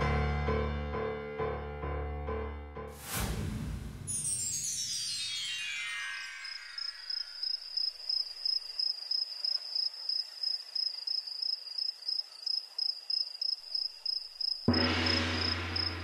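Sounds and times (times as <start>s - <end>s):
cricket chirping: 6.2s - 16.0s.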